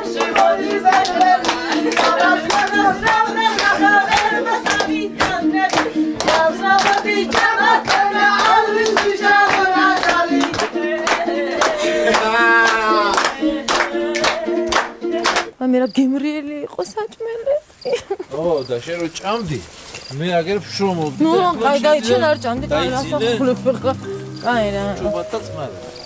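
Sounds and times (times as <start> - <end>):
hand-clapping: 0.0 - 15.5
group singing dance song: 0.0 - 15.6.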